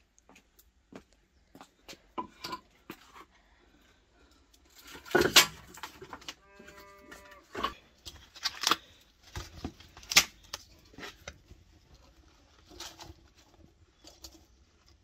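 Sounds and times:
firewood clacking and knocking: 4.9 - 6.3.

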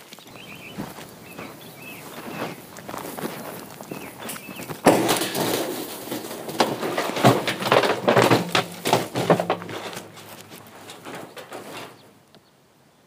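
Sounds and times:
heavy thump: 4.8 - 12.1
metal trash can clattering: 4.8 - 12.2
scraping in dry grass: 8.2 - 12.2.

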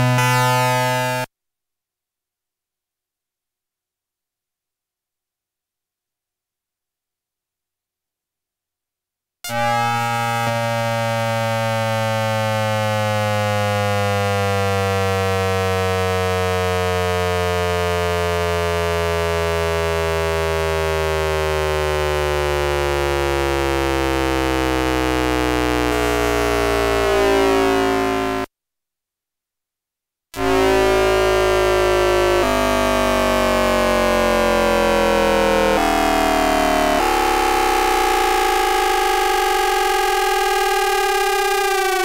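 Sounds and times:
electronic tones gliding downward: 0.0 - 1.3, 9.5 - 28.5, 30.4 - 42.0.

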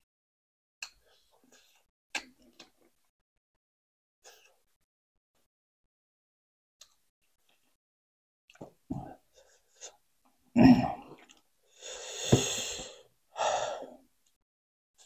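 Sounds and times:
breathy sounds: 10.6 - 14.1.

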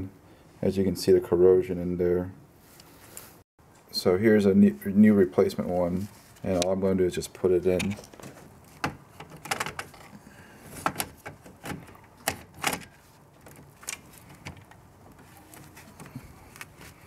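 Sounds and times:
glove and cable handling: 7.8 - 17.0.

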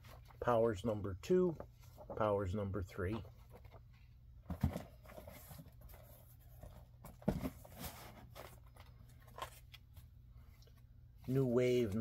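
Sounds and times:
paper and plastic rustling: 1.5 - 10.1.

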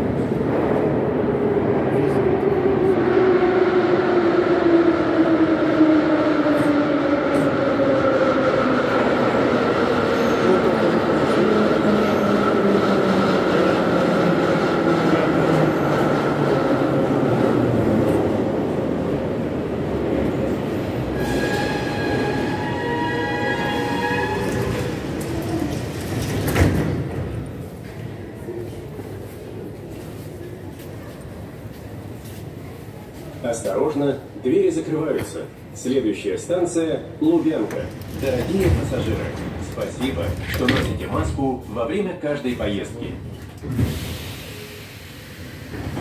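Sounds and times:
high brake squeal: 21.2 - 24.6.

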